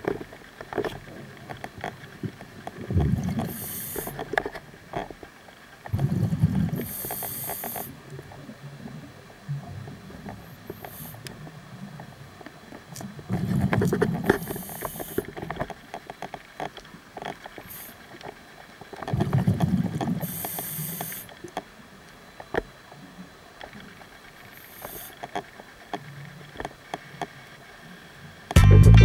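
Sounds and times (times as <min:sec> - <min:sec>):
regulator hiss: 0:03.4 - 0:04.3, 0:06.7 - 0:08.0, 0:10.4 - 0:11.3, 0:14.4 - 0:15.4, 0:17.6 - 0:18.2, 0:20.2 - 0:21.5, 0:24.3 - 0:25.3
exhaled bubbles underwater: 0:05.9 - 0:07.0.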